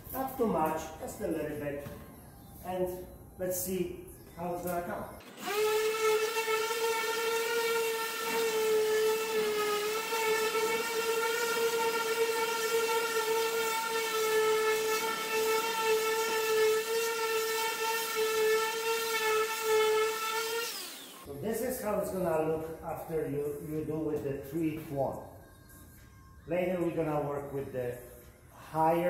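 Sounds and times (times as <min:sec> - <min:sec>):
electric sander whining on metal: 0:05.2 - 0:21.3.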